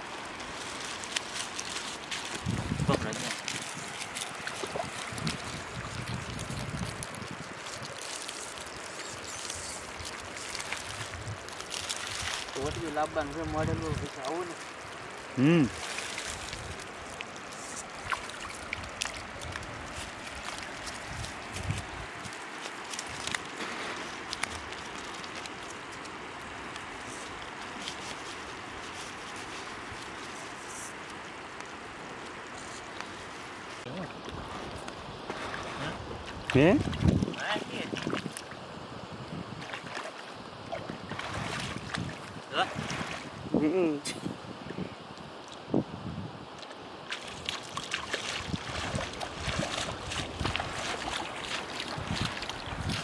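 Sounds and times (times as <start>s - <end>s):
water sloshing and trickling: 0.0s - 43.5s, 46.4s - 53.0s
shore ambience hiss: 0.0s - 53.0s.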